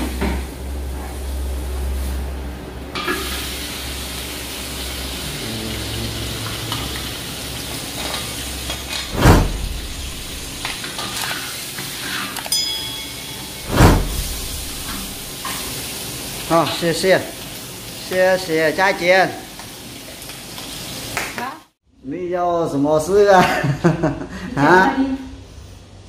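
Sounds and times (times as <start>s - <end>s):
meat sizzling in a wok: 3.0s - 9.0s, 10.8s - 12.4s, 15.3s - 21.8s
loud knock: 9.1s - 10.8s, 13.6s - 15.3s.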